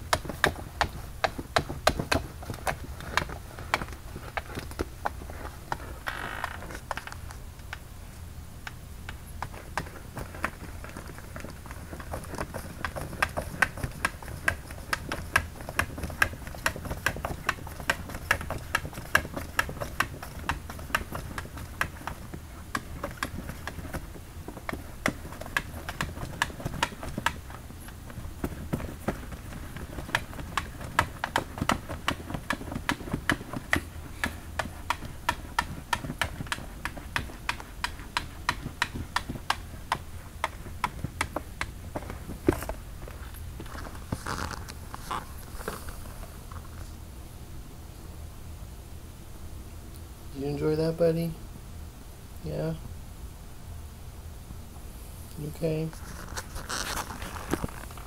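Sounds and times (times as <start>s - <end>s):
cat clawing at plastic box: 0.0s - 7.2s, 9.4s - 45.8s.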